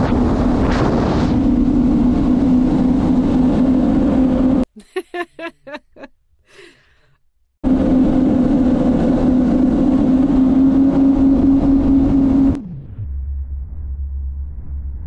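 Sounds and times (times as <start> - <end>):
jet ski engine running: 7.6 - 12.6.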